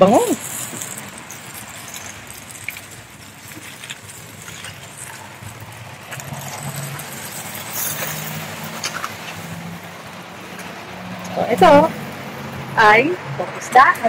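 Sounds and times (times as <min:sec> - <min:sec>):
wooden spatulas scraping grill grate: 0:00.0 - 0:09.8
aluminium foil crinkling: 0:00.0 - 0:09.9.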